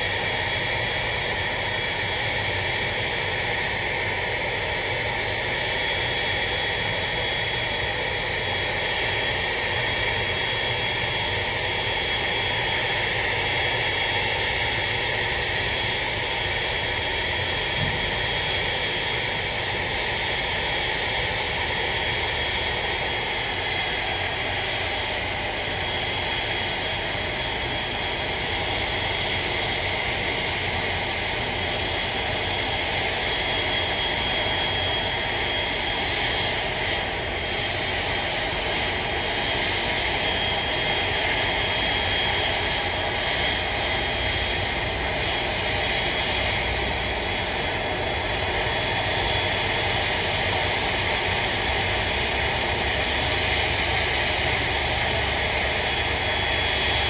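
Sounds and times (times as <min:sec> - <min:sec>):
aircraft auxiliary power unit whine: 0:00.0 - 0:57.0.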